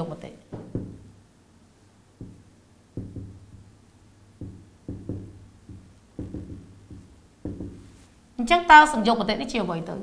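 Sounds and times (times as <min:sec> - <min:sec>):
marker pen writing on whiteboard: 0:02.2 - 0:03.8, 0:04.4 - 0:08.2.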